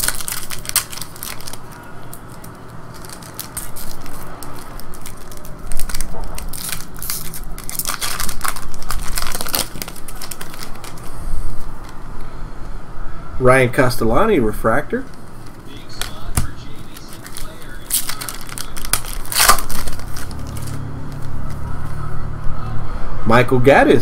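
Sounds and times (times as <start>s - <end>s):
foil wrapper crinkling and tearing: 0.0s - 12.0s, 15.1s - 22.0s.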